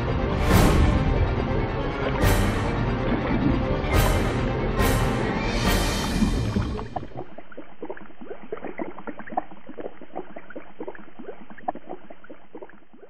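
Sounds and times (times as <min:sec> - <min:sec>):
underwater bubbles gurgling: 0:01.9 - 0:05.0, 0:05.6 - 0:13.0.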